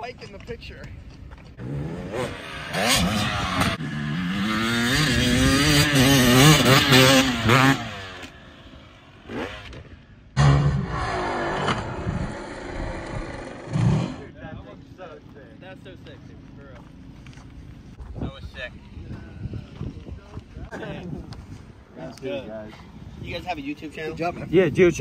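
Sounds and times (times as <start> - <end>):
dirt bike engine revving: 1.6 - 14.3.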